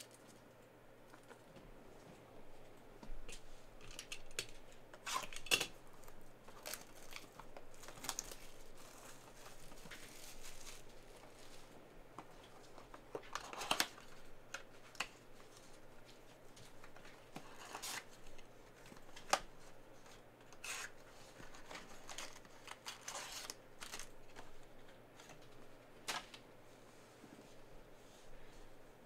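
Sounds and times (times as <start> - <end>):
cardboard and foil rustling: 3.2 - 26.3.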